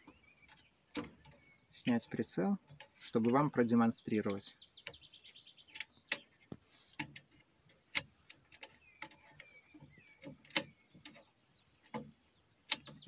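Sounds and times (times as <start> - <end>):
metallic clicks and taps: 11.9 - 13.0.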